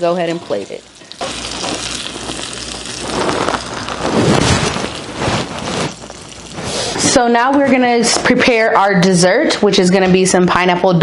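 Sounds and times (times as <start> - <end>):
fish searing in skillet: 0.0 - 7.3.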